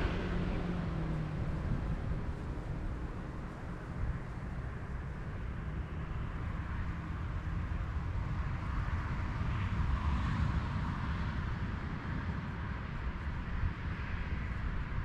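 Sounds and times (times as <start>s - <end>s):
vehicle passing: 0.0s - 7.8s
distant road traffic rumble: 0.0s - 15.0s.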